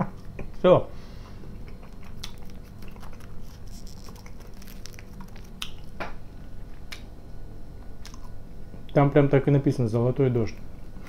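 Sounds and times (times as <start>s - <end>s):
soft chewing: 1.2s - 7.1s, 7.8s - 8.4s
foil wrapper crinkling: 2.4s - 6.0s.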